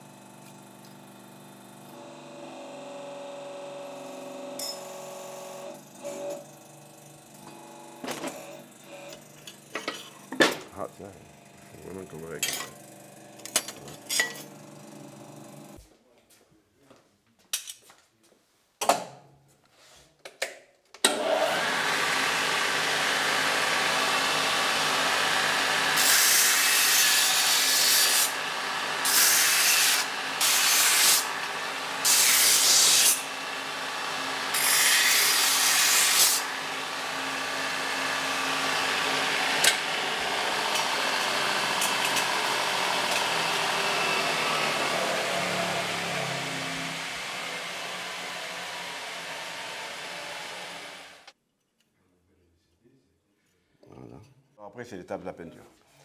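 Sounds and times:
belt sander running: 0.0s - 15.8s, 21.1s - 51.4s
steel grinding on sanding belt: 22.0s - 51.2s.

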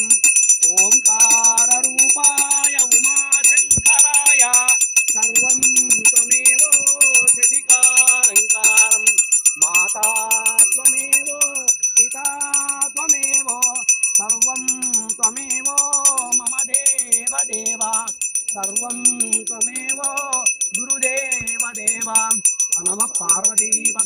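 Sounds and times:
brass hand bell ringing rapidly: 0.0s - 24.0s
voices singing devotional song: 0.0s - 24.0s.

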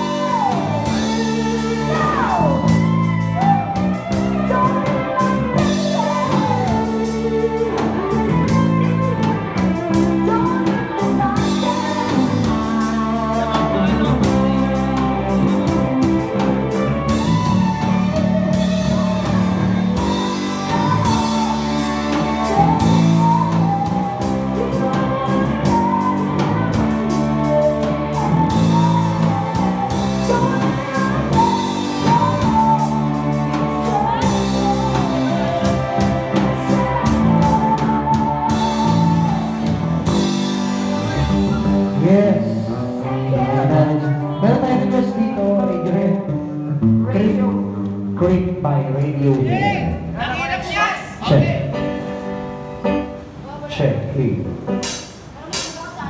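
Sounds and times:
person singing: 0.0s - 50.0s
electric guitar: 0.0s - 50.2s
live rock band: 0.0s - 53.7s, 54.5s - 56.0s.

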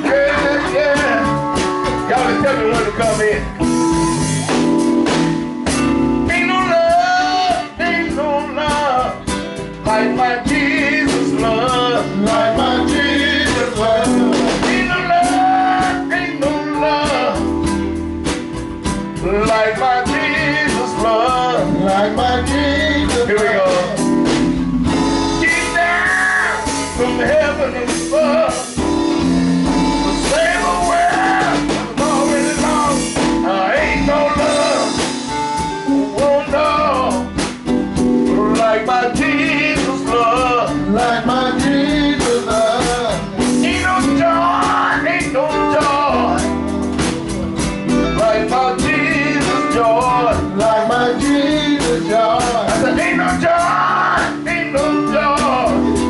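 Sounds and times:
voices singing: 0.0s - 3.6s, 9.9s - 17.5s, 25.4s - 28.8s, 30.1s - 35.3s, 38.4s - 46.5s, 48.0s - 55.9s
bass guitar: 0.0s - 56.0s
drums: 0.0s - 56.0s
electric guitar: 0.0s - 56.0s
keyboard: 0.0s - 56.0s.

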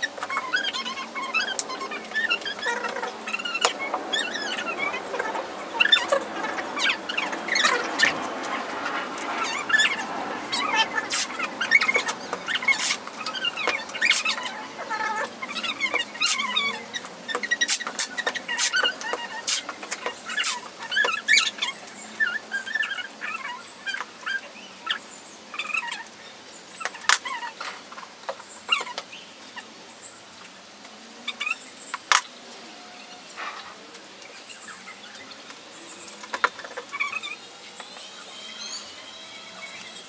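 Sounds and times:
tape squeaking off roll: 0.0s - 21.5s.

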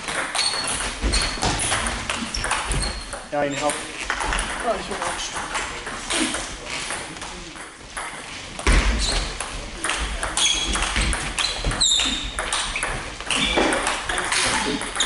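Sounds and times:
shoes squeaking on floor: 0.0s - 4.5s, 8.2s - 15.0s
table tennis ball clicking: 9.4s - 15.0s.

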